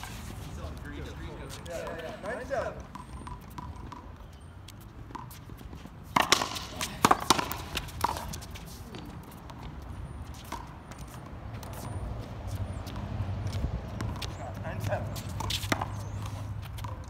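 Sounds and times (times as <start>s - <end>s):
footsteps on court: 0.0s - 17.0s
ball smacking off racquets and wall: 6.2s - 8.1s.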